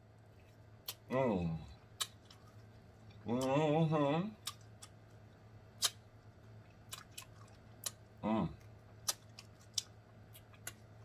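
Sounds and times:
wet lip smacks: 2.0s - 2.6s, 4.4s - 5.0s, 5.8s - 6.0s, 6.8s - 8.0s, 9.0s - 10.9s.

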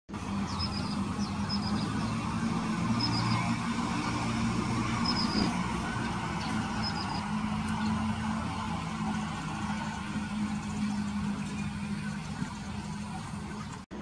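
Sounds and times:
engine hum: 0.1s - 14.0s
road traffic rumble: 0.1s - 14.0s
bird chirps: 0.4s - 5.6s, 6.2s - 8.0s.

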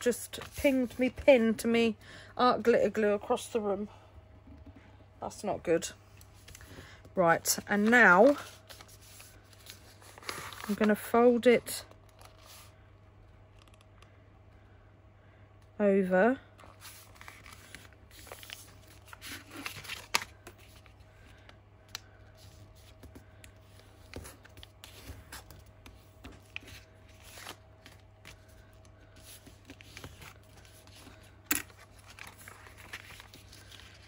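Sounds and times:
paper rustling and scraping: 7.6s - 11.1s, 16.6s - 21.0s, 23.7s - 34.0s.

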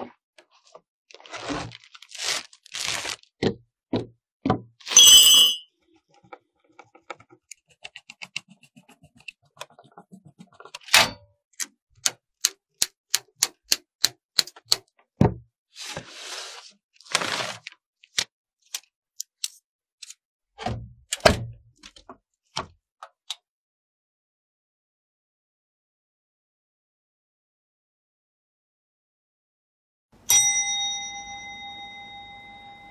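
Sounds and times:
screwdriver ticks: 11.6s - 14.9s.

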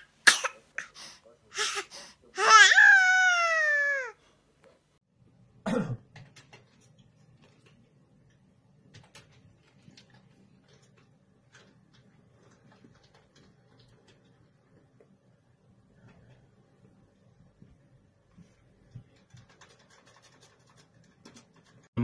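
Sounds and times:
cat yowling: 2.4s - 4.2s.

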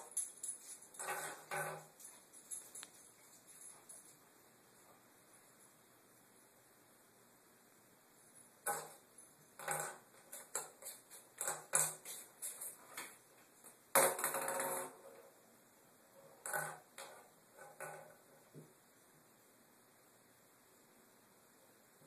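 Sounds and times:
ping pong ball bouncing in bathtub: 9.6s - 12.2s.

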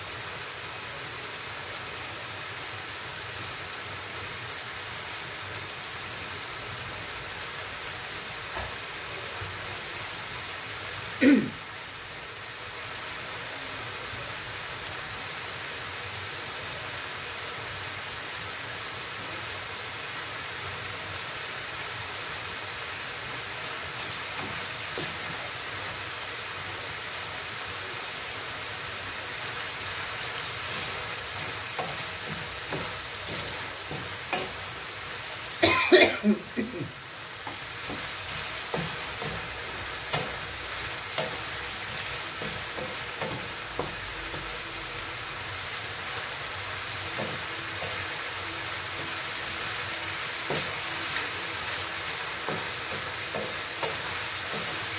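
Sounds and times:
food simmering in frying pan: 0.0s - 54.9s
wooden spatula stirring pan: 23.9s - 26.0s, 29.5s - 35.5s, 36.4s - 45.1s, 45.8s - 54.9s.

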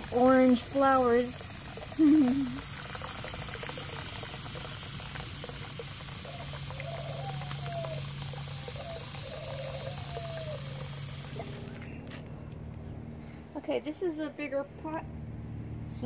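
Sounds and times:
hose water pouring into tub: 0.0s - 11.9s.

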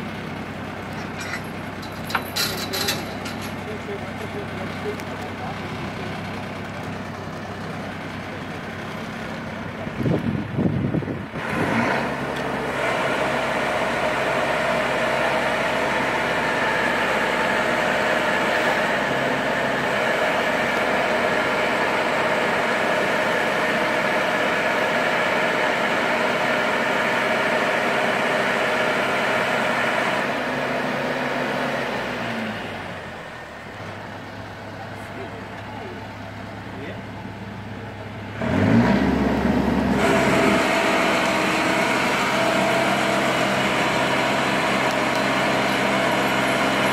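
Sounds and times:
engine drone: 0.0s - 46.9s
lifting gear mechanical whine: 28.6s - 46.9s.

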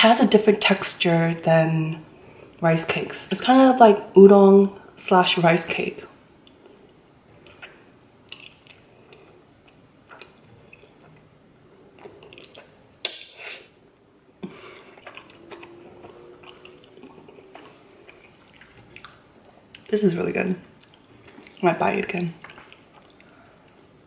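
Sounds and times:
mouth clicks and chewing: 6.4s - 11.3s, 11.9s - 13.4s, 14.4s - 19.9s, 20.8s - 23.9s.

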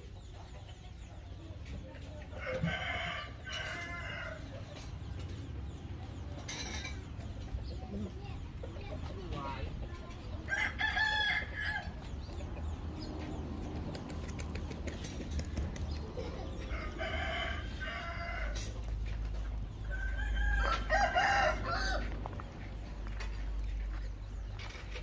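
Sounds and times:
rooster crowing: 16.7s - 18.7s, 19.9s - 22.2s.

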